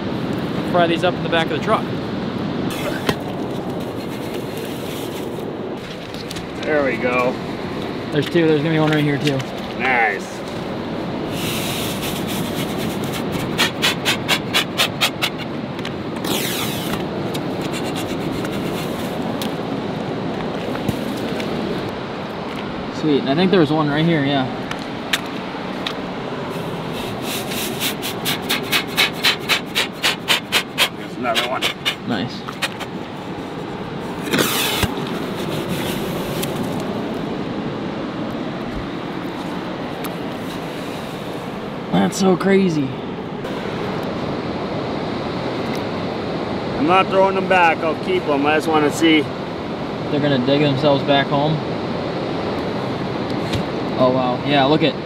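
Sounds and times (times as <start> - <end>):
ocean surf: 0.0 - 55.0
steady rushing noise: 0.0 - 55.0
wind: 0.0 - 55.0
sucking rush of sand: 2.6 - 5.8, 9.8 - 15.5, 26.2 - 45.4.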